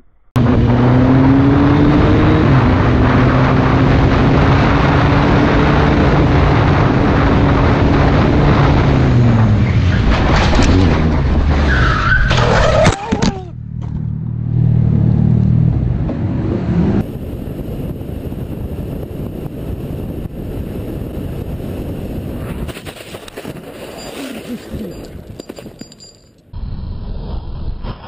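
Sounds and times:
wind and road noise: 0.0s - 28.0s
motorcycle engine hum: 13.1s - 22.6s.

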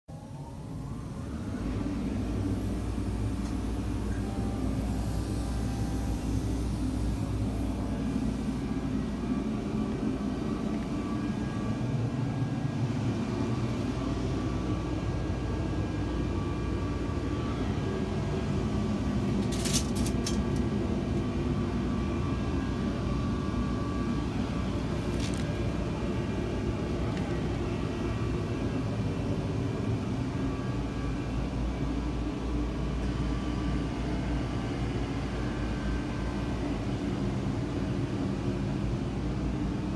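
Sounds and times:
thin steady tones: 0.1s - 19.4s
machinery drone: 0.1s - 39.9s.

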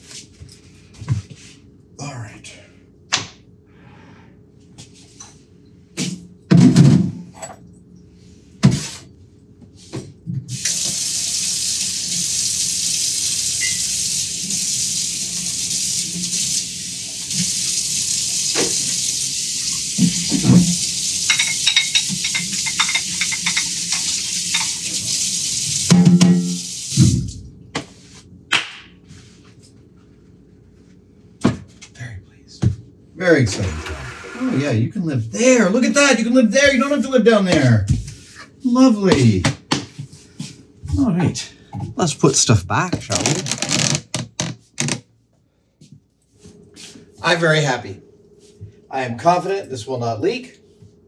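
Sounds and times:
faucet water running into sink: 10.5s - 27.4s
dishes clunking and knocking: 21.3s - 24.8s.

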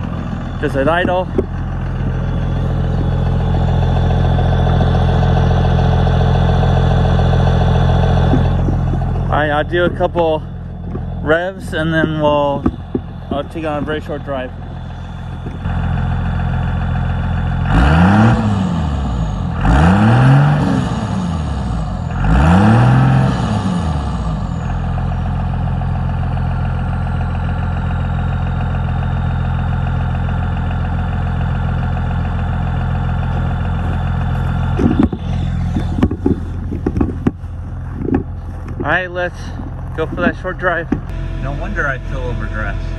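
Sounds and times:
diesel engine idling: 0.0s - 42.9s
diesel engine revving: 0.0s - 42.9s
turbo whistle: 41.1s - 42.9s.

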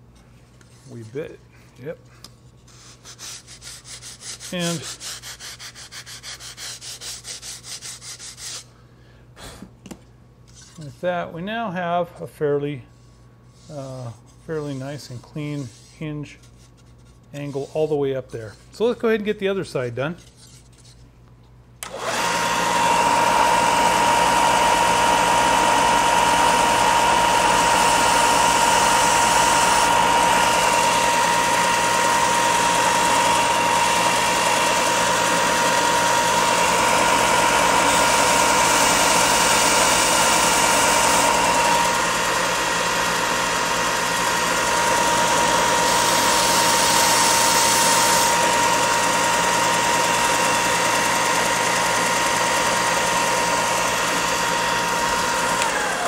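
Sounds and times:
wood grinding on sanding belt: 2.8s - 8.7s, 22.2s - 56.0s
belt sander whining: 21.8s - 56.0s.

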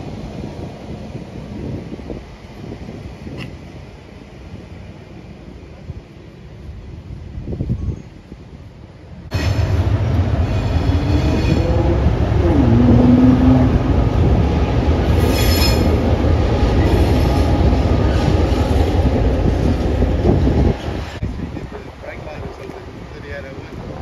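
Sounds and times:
diesel locomotives rumbling on bridge: 0.0s - 24.0s.

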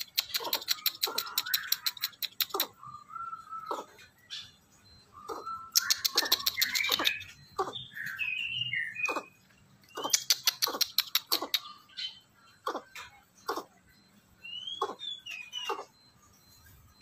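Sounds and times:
sharp clicks: 0.0s - 2.7s, 5.7s - 7.3s, 9.8s - 11.7s
coucal calling: 0.0s - 16.1s.

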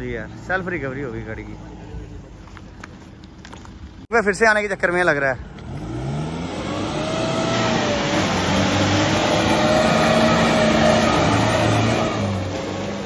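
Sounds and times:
car engine revving under load: 5.4s - 13.0s
tyres churning mud: 5.6s - 13.0s.

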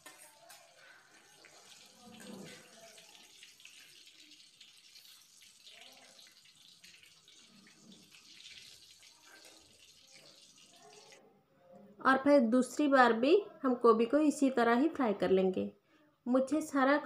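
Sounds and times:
food deep-frying in oil: 0.0s - 11.2s.

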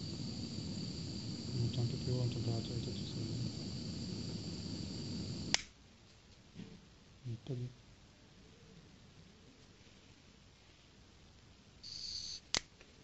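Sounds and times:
heat gun blowing with high whine: 0.0s - 5.6s, 11.8s - 12.6s.

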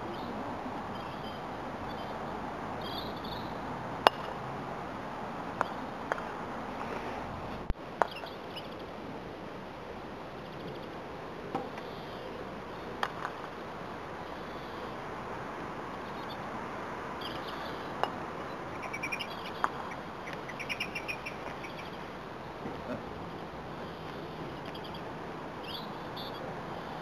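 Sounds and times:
bird chirps: 2.8s - 3.6s, 8.0s - 8.8s, 18.5s - 22.0s, 25.6s - 26.4s
croquet balls clacking: 4.0s - 4.4s, 18.0s - 18.2s.

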